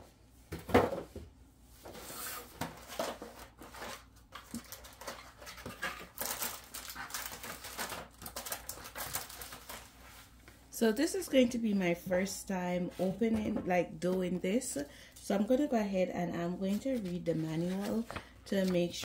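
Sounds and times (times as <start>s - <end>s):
paper and cardboard rustling: 1.9s - 10.4s, 16.6s - 19.0s.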